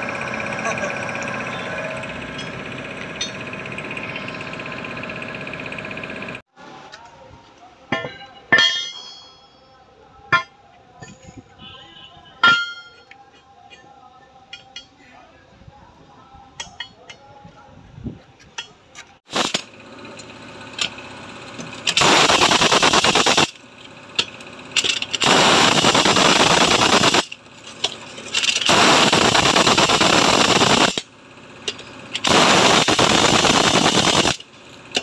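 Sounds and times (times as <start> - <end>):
pneumatic impact wrench hammering: 19.3 - 35.0.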